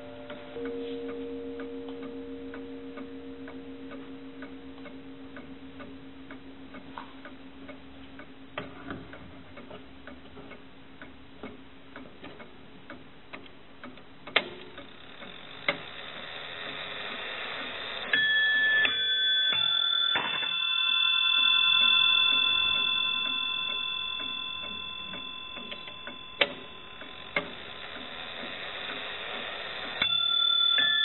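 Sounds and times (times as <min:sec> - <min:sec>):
clock ticking: 0:00.0 - 0:31.0
sharp clock clicks: 0:06.8 - 0:20.6.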